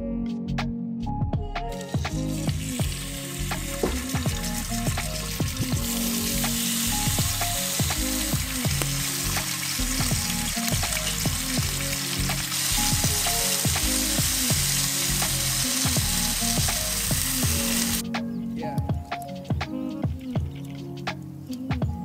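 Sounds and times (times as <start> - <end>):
bacon sizzling in a skillet: 1.8 - 18.0.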